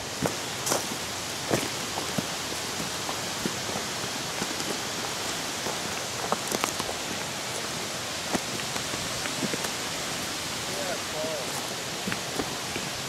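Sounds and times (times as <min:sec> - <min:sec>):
water rushing: 0:00.0 - 0:13.0.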